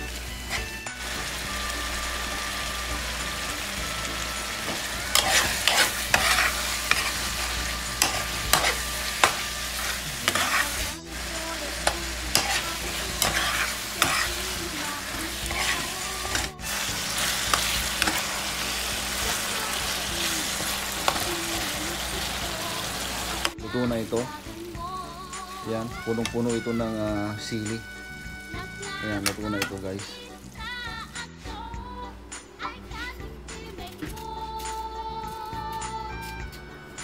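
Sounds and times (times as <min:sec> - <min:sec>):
frying pan sizzling: 0:00.0 - 0:34.3
metal spoon scraping a pan: 0:00.2 - 0:01.1, 0:04.6 - 0:22.4.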